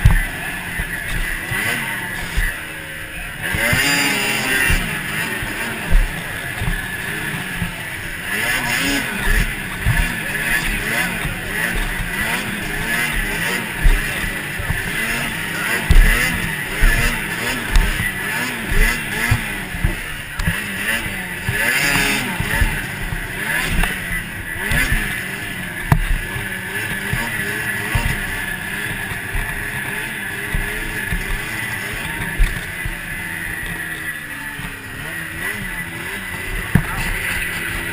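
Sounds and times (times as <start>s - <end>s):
snowmobile engine revving: 0.0s - 37.9s
knocks and thumps: 9.2s - 25.2s, 25.8s - 27.3s.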